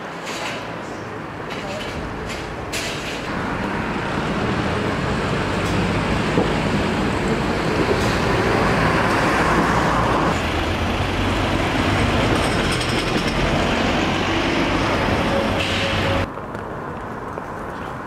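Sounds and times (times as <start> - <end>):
car and bus engines running: 0.0 - 18.0
low road hum: 0.0 - 18.0.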